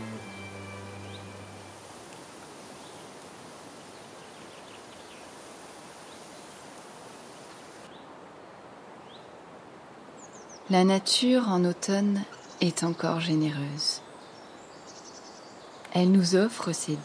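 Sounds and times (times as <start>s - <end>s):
hiss of air and foliage: 0.0s - 10.4s.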